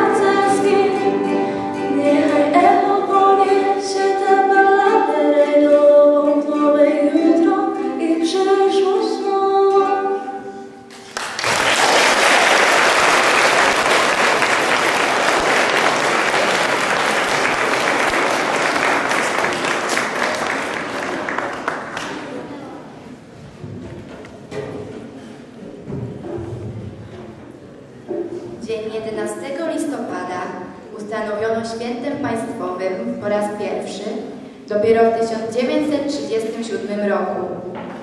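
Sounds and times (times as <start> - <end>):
girl singing into a microphone: 0.0 - 10.8
acoustic guitar: 0.0 - 11.2
audience applauding: 10.9 - 22.5.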